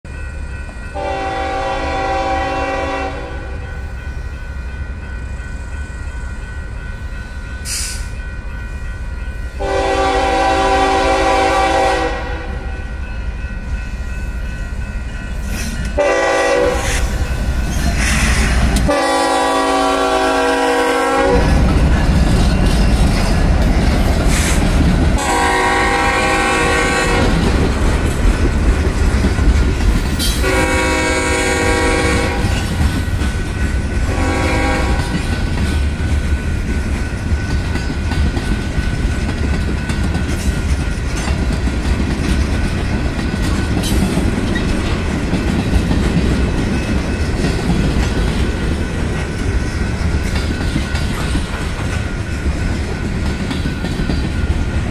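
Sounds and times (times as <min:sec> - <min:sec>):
train wheels clattering on rails: 0:00.1 - 0:54.9
locomotive rumble: 0:00.2 - 0:54.9
locomotive air horn blasts: 0:00.9 - 0:03.6, 0:09.6 - 0:12.7, 0:16.0 - 0:17.2, 0:18.3 - 0:21.6, 0:25.2 - 0:27.4, 0:30.4 - 0:32.6, 0:34.0 - 0:35.1.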